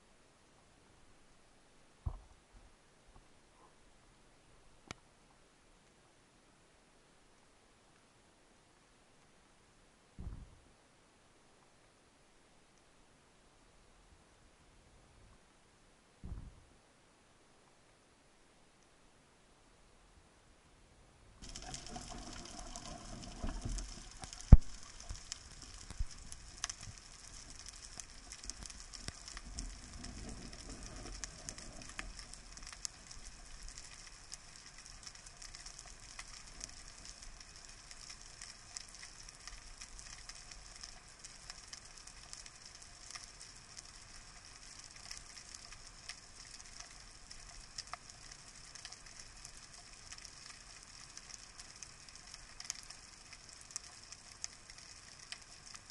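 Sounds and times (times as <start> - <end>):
low rumble of water movement: 21.3 - 55.9
underwater crackling and hiss: 21.4 - 55.9.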